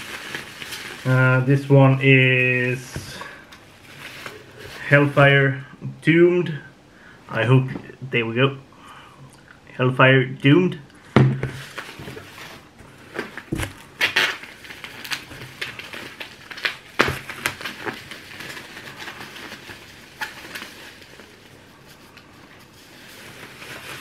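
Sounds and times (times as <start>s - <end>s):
packing material rustling: 0.0s - 5.4s, 11.4s - 24.0s.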